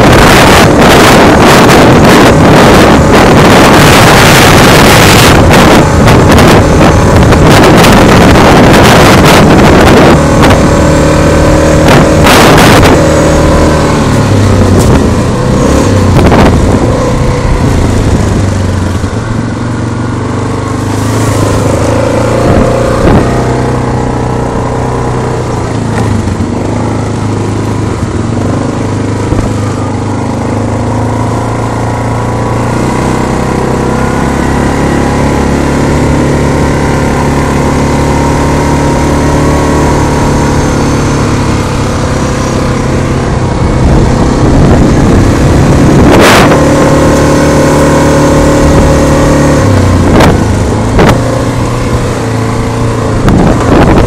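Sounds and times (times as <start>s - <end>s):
atv engine running: 0.0s - 54.0s
wind noise on microphone: 0.0s - 54.0s.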